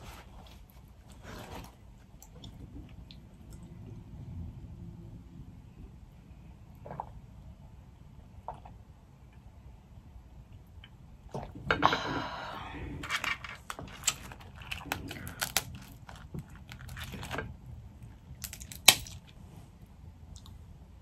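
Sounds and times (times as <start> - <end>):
crawfish shells cracking: 13.0 - 17.6, 18.3 - 19.4.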